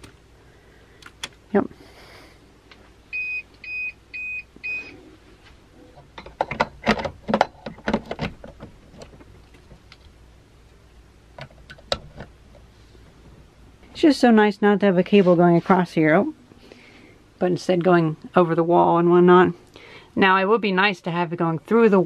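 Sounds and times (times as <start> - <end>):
battery backup beeping: 3.1 - 5.0.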